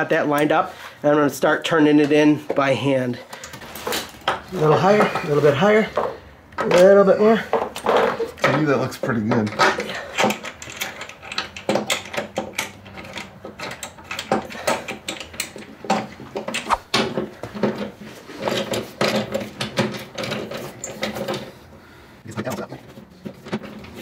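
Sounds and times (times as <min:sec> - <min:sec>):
hand tools and metal hardware clinking: 0:03.3 - 0:21.5.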